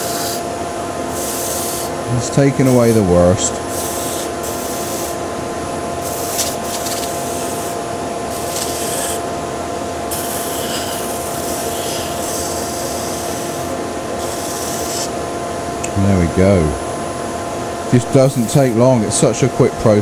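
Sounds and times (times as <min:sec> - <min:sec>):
sanding disc rasping on wood: 0:08.3 - 0:09.2, 0:10.1 - 0:13.6, 0:18.2 - 0:18.7.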